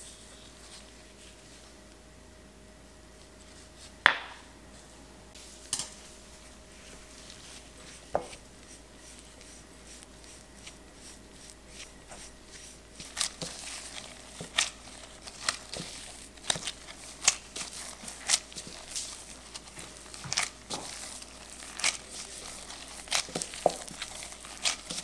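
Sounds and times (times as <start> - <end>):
dough pressed and kneaded by hand: 2.8 - 25.0
crumbly dough crackling: 6.6 - 25.0
disposable gloves crinkling: 6.6 - 25.0
spatula mixing in bowl: 6.7 - 25.0.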